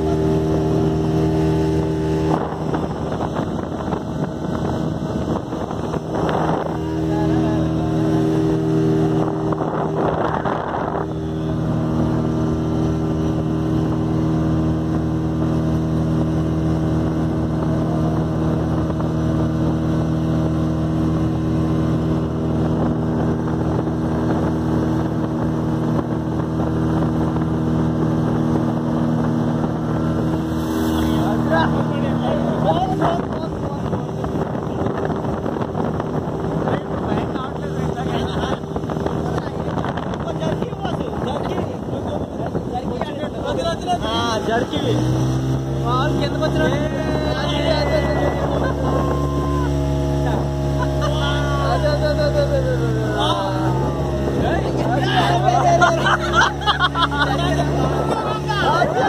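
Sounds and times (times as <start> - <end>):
speedboat engine running: 0.0 - 59.0
water and wind rushing: 0.0 - 59.0.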